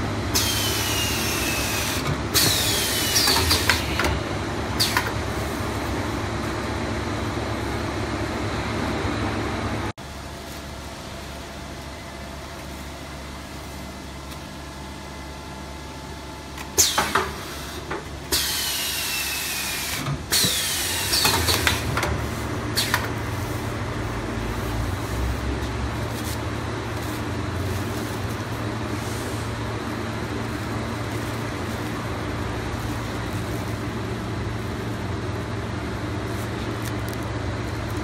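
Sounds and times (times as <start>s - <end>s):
air hissing with falling whistle: 0.4s - 3.6s, 18.3s - 21.3s
air cylinders clacking: 0.4s - 4.2s, 16.6s - 23.2s.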